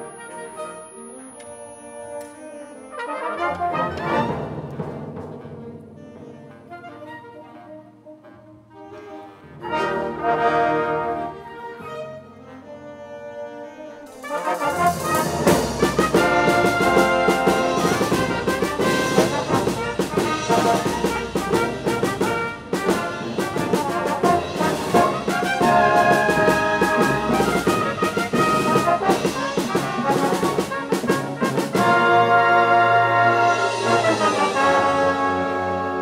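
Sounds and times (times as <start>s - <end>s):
concert band playing loudly: 14.2s - 36.0s.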